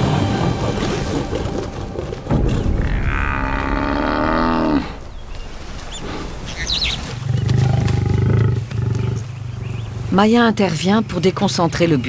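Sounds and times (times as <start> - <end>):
lion growling low: 0.4 - 10.1
buffalo bellowing: 2.5 - 5.0.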